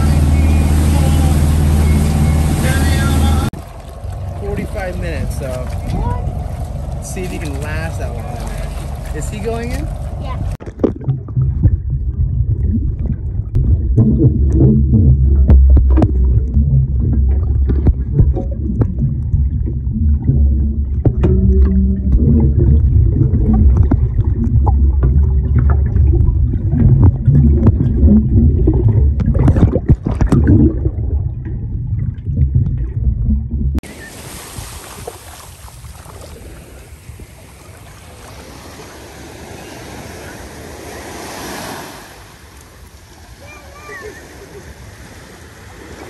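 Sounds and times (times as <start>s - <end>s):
ocean waves hissing: 0.0s - 3.5s, 33.9s - 46.0s
low muffled rumbling: 0.0s - 34.0s.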